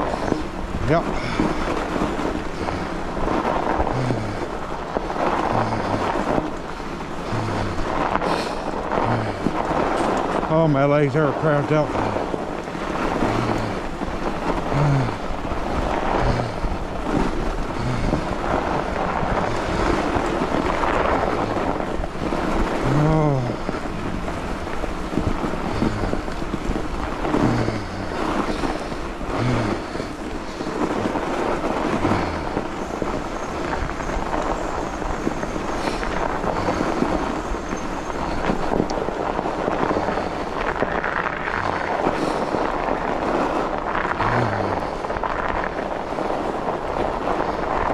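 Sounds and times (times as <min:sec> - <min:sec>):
grunting breaths: 0:00.0 - 0:47.9
tyres rolling over snow: 0:00.0 - 0:47.9
wind on microphone: 0:00.0 - 0:47.9.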